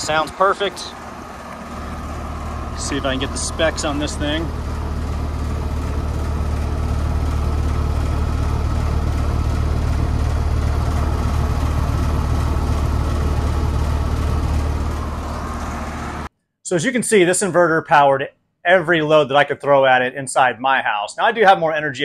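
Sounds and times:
compressor hum: 0.0s - 16.3s
condenser fan rushing: 0.0s - 16.3s.

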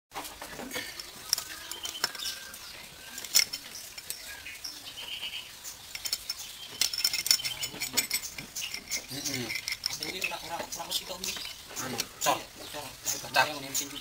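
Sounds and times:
metallic clicks of tools: 3.2s - 4.3s, 5.9s - 12.1s.

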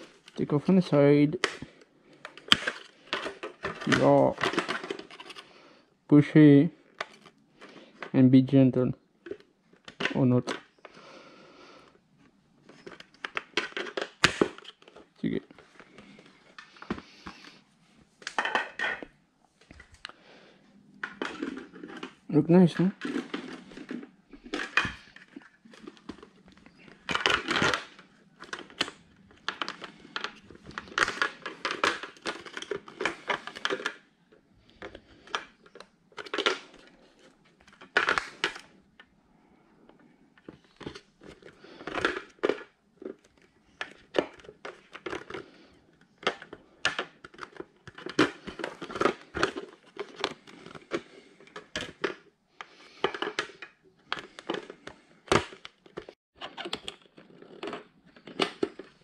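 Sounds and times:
hard plastic clicks and scrapes: 1.4s - 5.5s, 22.8s - 39.1s, 39.9s - 59.0s.

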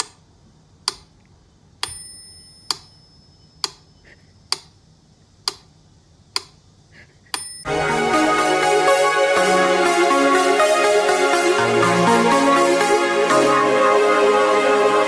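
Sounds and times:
bell-like ring: 1.9s - 3.6s.

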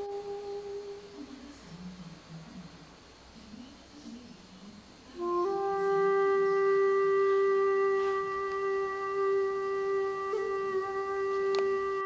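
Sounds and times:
flute-like woodwind note: 0.0s - 1.2s, 5.2s - 12.0s.

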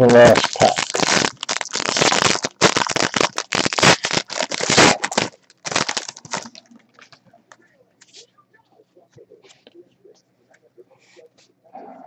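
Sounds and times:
foil wrapper tearing and crinkling: 0.0s - 7.2s.

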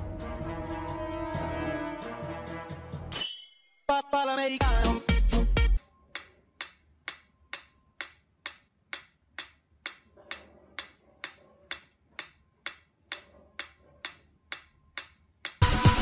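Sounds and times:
metronome ticking: 5.7s - 15.6s.

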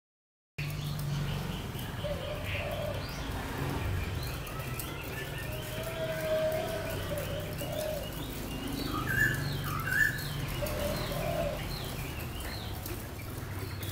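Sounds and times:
songbird whistling: 8.9s - 10.3s.

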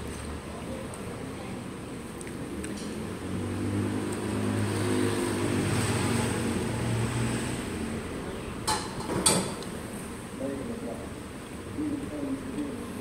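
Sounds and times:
vehicle engine passing: 2.6s - 8.6s.

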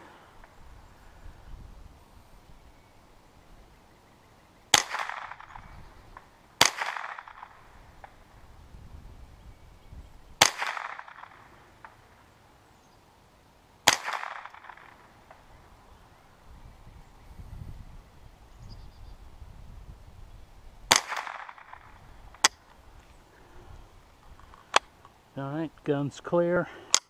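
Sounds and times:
rifle shots with echo: 4.7s - 5.6s, 6.2s - 8.2s, 10.4s - 12.1s, 13.8s - 15.4s, 20.9s - 22.5s.

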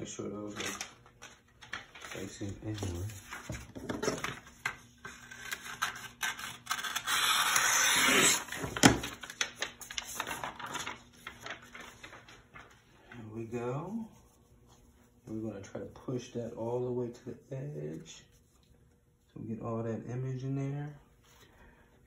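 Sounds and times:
scissors cutting paper: 5.0s - 9.2s.

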